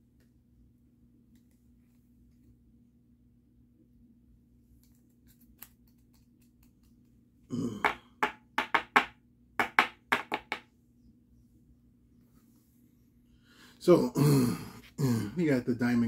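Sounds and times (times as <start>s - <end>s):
trading cards tapping and clicking: 7.8s - 10.7s.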